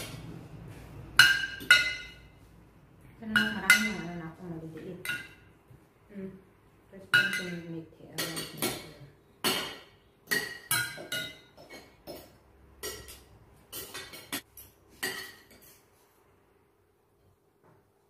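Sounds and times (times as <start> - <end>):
cutlery clinking on plates: 1.2 - 2.3, 8.2 - 15.9.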